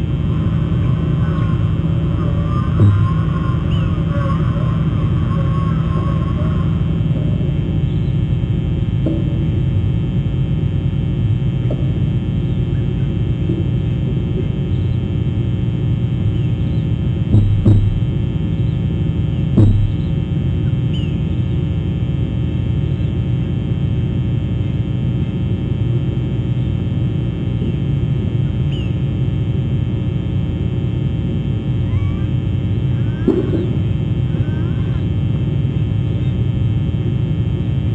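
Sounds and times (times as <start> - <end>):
low rumble with hum: 0.0 - 37.9
sharp knocks: 17.4 - 18.1, 19.6 - 20.1.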